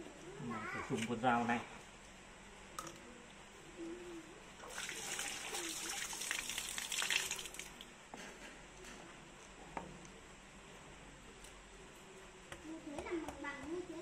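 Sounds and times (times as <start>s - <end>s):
tap water splashing into basin: 4.7s - 7.8s.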